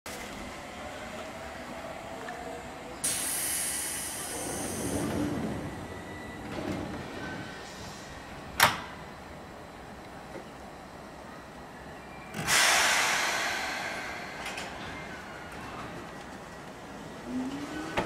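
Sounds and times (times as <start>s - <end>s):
train doors hissing air: 3.0s - 9.0s, 12.3s - 15.8s
doors sliding rumble: 4.2s - 8.8s, 13.6s - 18.0s
door shutting clunk: 8.6s - 9.0s.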